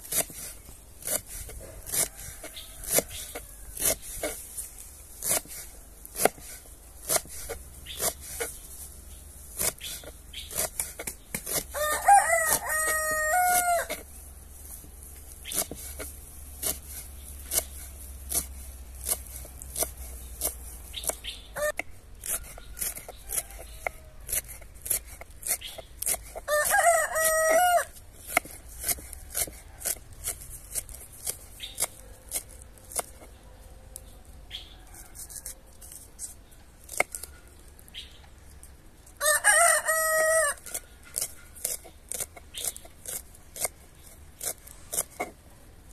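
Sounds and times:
knife chopping on wooden board: 0:05.2 - 0:08.6, 0:09.6 - 0:11.7, 0:15.5 - 0:17.7, 0:18.3 - 0:27.7, 0:28.3 - 0:33.3
rooster crowing: 0:11.7 - 0:14.0, 0:26.5 - 0:28.0, 0:39.2 - 0:40.8.

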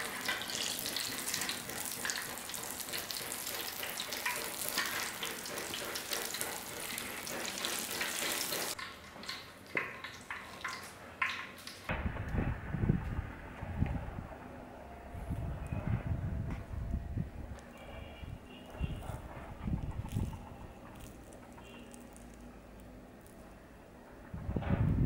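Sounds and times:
deep-frying crackling sizzle: 0:00.0 - 0:12.0, 0:19.7 - 0:23.8.

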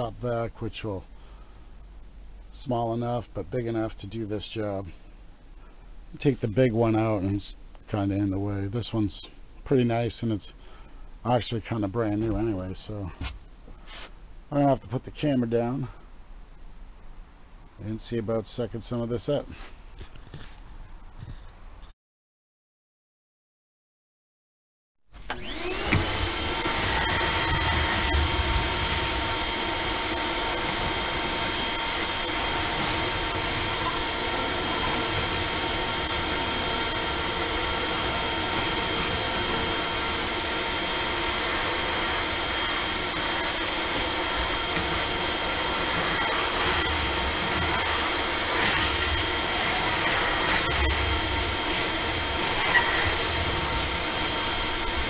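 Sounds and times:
shop vacuum motor whine: 0:25.2 - 0:55.0.

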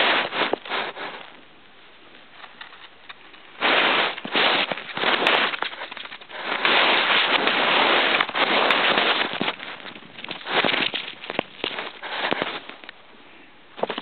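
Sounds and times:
hamster claws scratching paper: 0:02.5 - 0:12.9.

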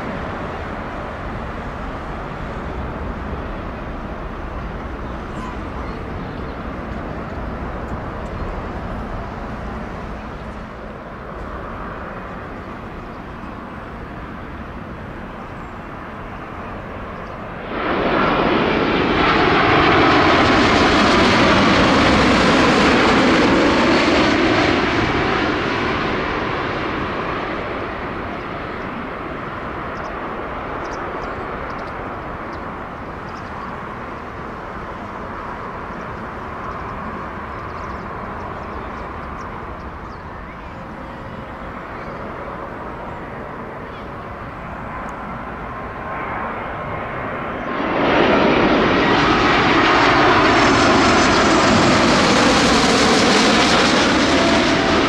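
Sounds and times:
distant traffic: 0:00.0 - 0:55.0
jet airliner passing overhead: 0:00.0 - 0:55.0.

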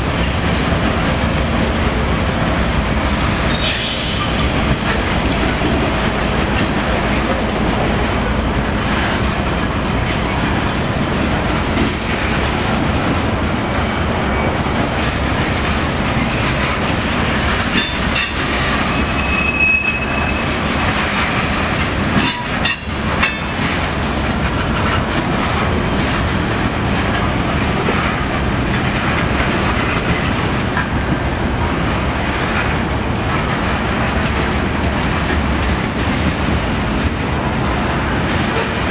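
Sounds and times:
train wheels rumbling on rails: 0:00.0 - 0:38.9
wheel squeal: 0:17.8 - 0:20.5.

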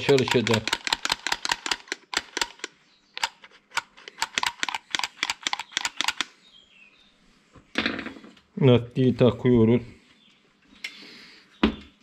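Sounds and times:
hand tools clicking: 0:00.0 - 0:06.4.

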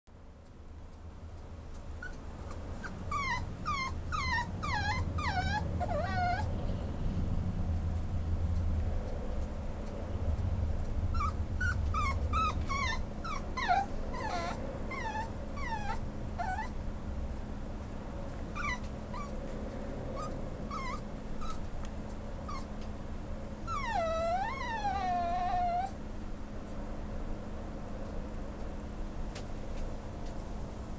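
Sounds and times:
puppy whimpering: 0:00.4 - 0:06.6, 0:11.1 - 0:16.8, 0:18.5 - 0:19.4, 0:20.2 - 0:21.7, 0:22.5 - 0:22.8, 0:23.5 - 0:26.0.

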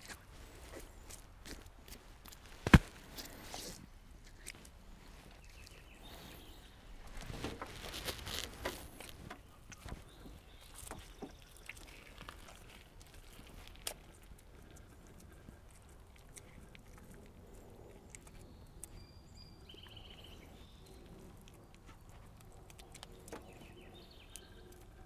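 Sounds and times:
wet feathers being pulled: 0:07.1 - 0:10.0.

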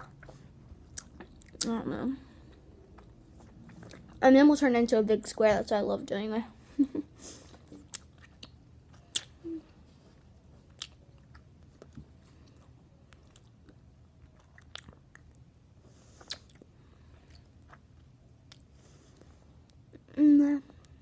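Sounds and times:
gum chewing mouth clicks and smacks: 0:02.8 - 0:04.2, 0:07.6 - 0:09.4, 0:10.7 - 0:15.4, 0:16.2 - 0:16.7, 0:17.3 - 0:20.0.

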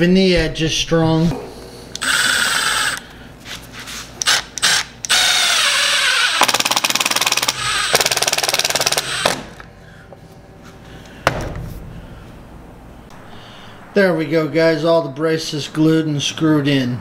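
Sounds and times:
impact driver driving screws: 0:04.2 - 0:09.6
impact driver hammering rattle: 0:06.3 - 0:09.6.

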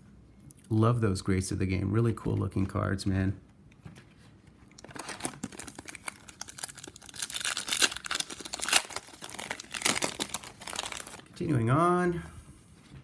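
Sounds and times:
foil wrapper tearing and crinkling: 0:04.8 - 0:11.3.

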